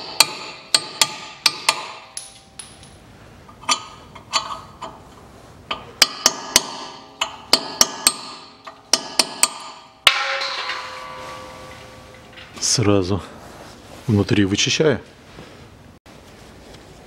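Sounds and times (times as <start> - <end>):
hammer tapping on metal: 5.7 - 12.5.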